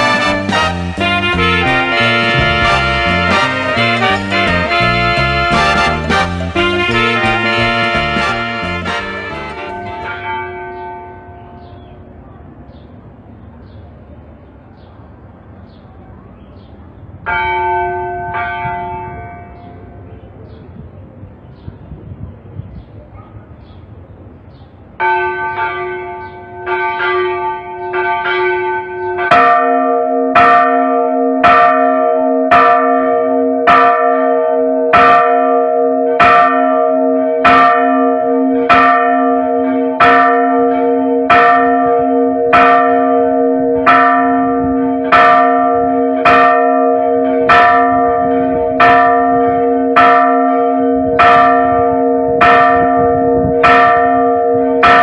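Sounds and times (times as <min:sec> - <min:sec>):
higher church bell struck: 0:00.0 - 0:11.8, 0:25.0 - 0:55.0
deep church bell ringing: 0:00.0 - 0:12.0, 0:17.3 - 0:20.1, 0:25.0 - 0:55.0.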